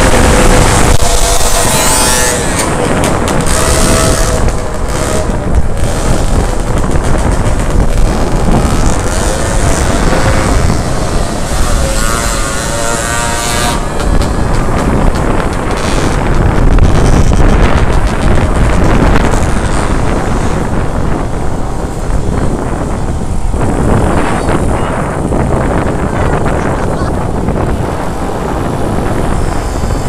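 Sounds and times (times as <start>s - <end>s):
small two-stroke engines running: 0.0s - 29.9s
wind buffeting on microphone: 0.0s - 30.0s.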